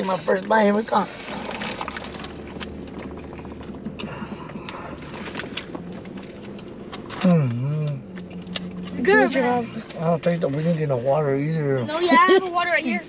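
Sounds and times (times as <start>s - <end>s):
man chewing food: 0.0s - 11.2s
low car cabin hum: 0.0s - 13.0s
paper wrapper crinkling: 1.0s - 3.8s.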